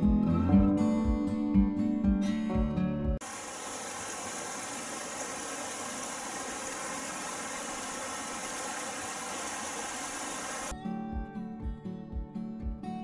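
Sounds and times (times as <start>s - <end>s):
stream rushing over stones: 3.2s - 10.7s.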